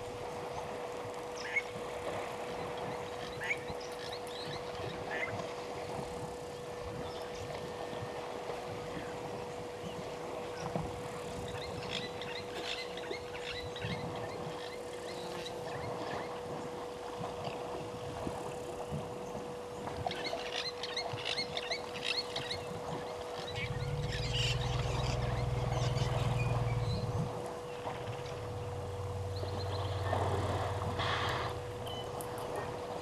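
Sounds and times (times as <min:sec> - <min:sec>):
steady hum: 0:00.0 - 0:33.0
small birds chirping: 0:20.2 - 0:30.2
water sloshing and splashing: 0:22.9 - 0:33.0
deep low rumble: 0:23.5 - 0:32.6.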